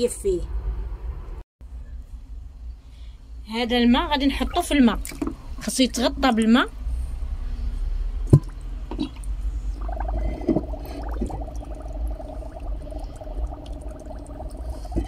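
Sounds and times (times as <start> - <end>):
water sloshing and dripping: 8.3 - 15.0
steady pitched tone: 9.8 - 15.0.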